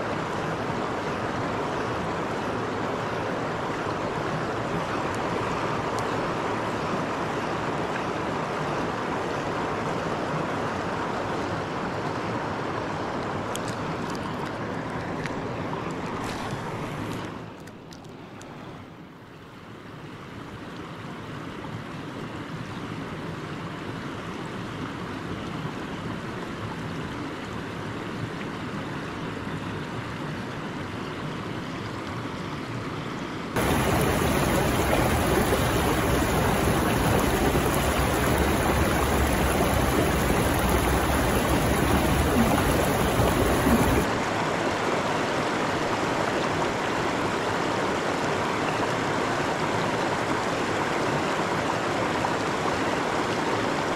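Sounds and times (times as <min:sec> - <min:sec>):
river rapids rushing: 0:33.6 - 0:45.1.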